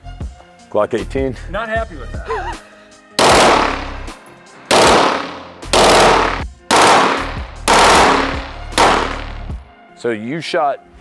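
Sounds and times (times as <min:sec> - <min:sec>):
machine pistol firing bursts: 0:03.2 - 0:04.1, 0:04.7 - 0:09.4.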